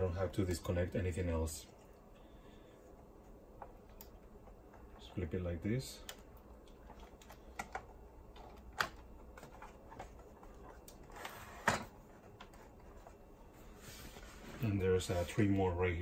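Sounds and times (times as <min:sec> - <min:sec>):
clicks and knocks of plastic parts: 0:06.0 - 0:11.1.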